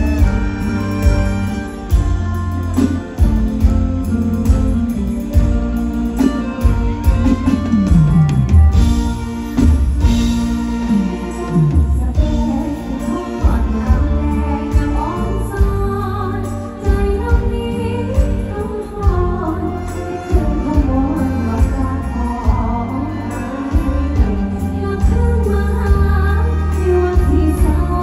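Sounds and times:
band with heavy bass: 0.0 - 28.0
steady drum beat: 0.0 - 28.0
woman singing through pa system: 10.9 - 28.0.

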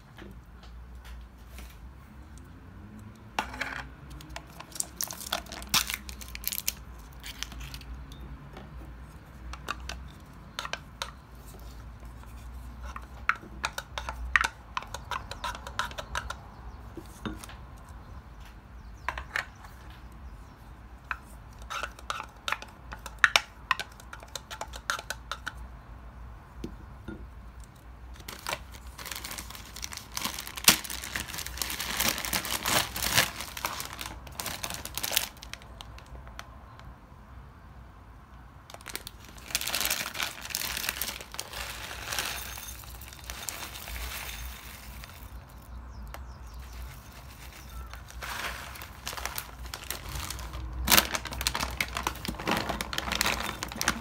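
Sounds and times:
small objects clicking and clinking: 3.1 - 8.2, 38.7 - 54.0
packaging crinkling: 4.3 - 7.9, 28.2 - 36.1, 38.7 - 45.7, 46.6 - 54.0.

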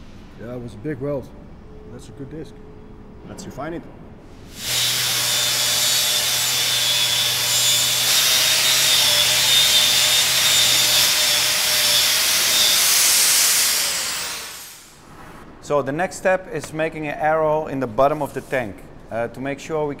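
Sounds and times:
angle grinder grinding steel: 4.6 - 15.0.

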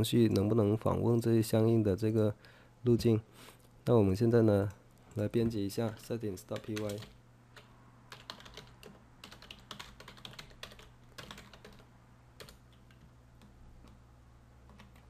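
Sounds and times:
keyboard typing: 6.6 - 14.0, 14.6 - 15.0.

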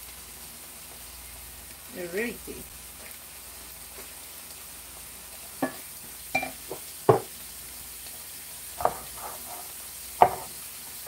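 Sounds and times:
vegetables sizzling in a frying pan: 0.0 - 11.0
spoon knocking against pan: 6.4 - 7.3, 8.8 - 9.6, 10.2 - 10.6
wooden spoon stirring: 8.8 - 10.5.

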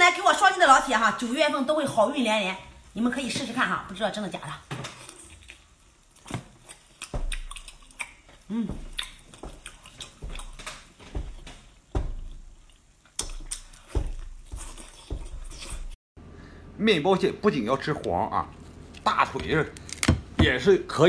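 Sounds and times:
wet chewing and smacking: 4.8 - 16.0.

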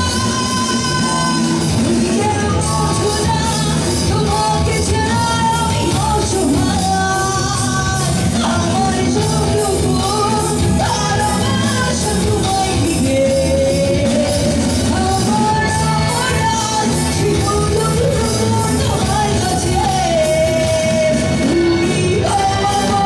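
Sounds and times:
live rock band: 0.0 - 23.0
woman singing into a microphone: 0.0 - 23.0.

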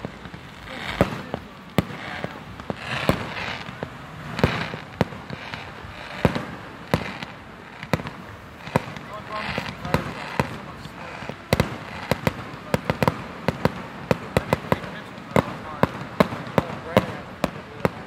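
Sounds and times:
fireworks bursting: 0.0 - 18.0.

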